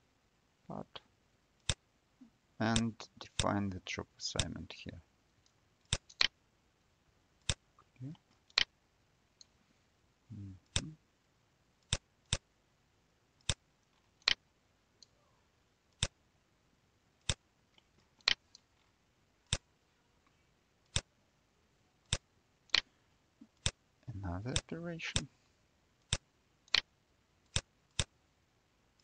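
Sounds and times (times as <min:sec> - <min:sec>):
computer mouse clicking: 0:05.9 - 0:06.3, 0:08.5 - 0:08.7, 0:14.2 - 0:14.4, 0:16.0 - 0:16.2, 0:18.2 - 0:18.4, 0:22.1 - 0:22.9, 0:26.0 - 0:26.9.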